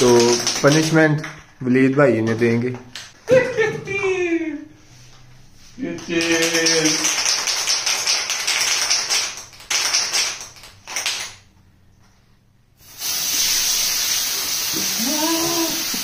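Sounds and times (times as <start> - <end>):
spray can clattering hiss: 12.8 - 16.0
steady hiss of spray: 12.8 - 16.0.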